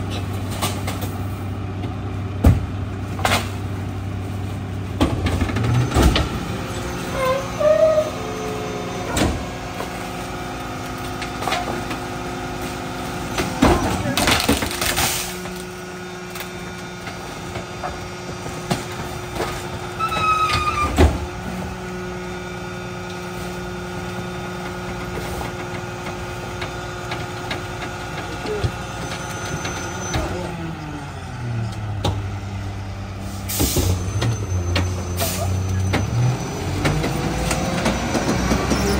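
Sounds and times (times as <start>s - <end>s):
garbage truck diesel engine: 0.0s - 38.9s
hydraulic squeal: 7.0s - 9.4s, 20.0s - 21.0s, 28.9s - 30.4s, 33.5s - 36.8s.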